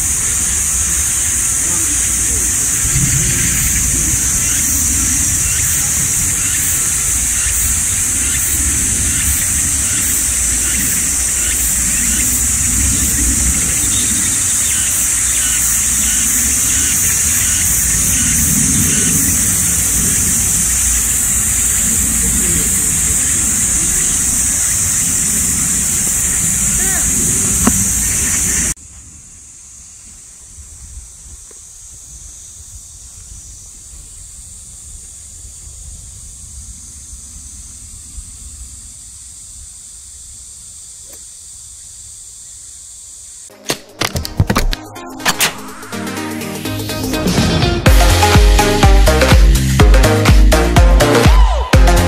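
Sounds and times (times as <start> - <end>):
high-pitched drone: 0.0 - 28.8, 43.5 - 52.0
high-pitched hiss: 0.0 - 43.6, 44.2 - 52.0
whoosh and hit sound effect: 43.5 - 46.4.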